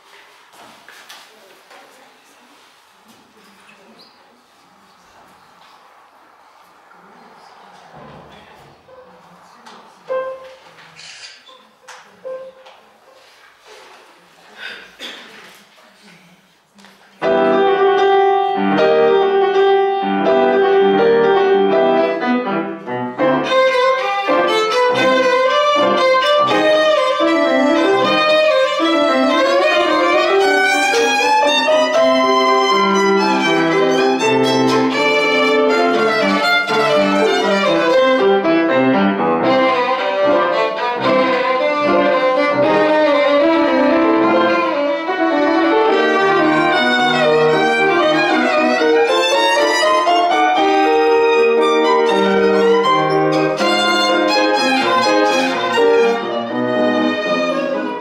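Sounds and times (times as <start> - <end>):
piano accompaniment: 10.0 - 10.7, 12.1 - 13.0, 17.2 - 58.0
solo violin: 23.2 - 58.0.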